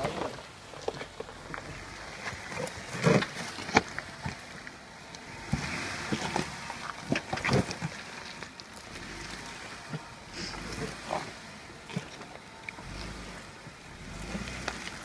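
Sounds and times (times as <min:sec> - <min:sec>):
tyres crunching over rock: 0:00.0 - 0:13.2
rocks knocking and scraping: 0:00.0 - 0:13.3.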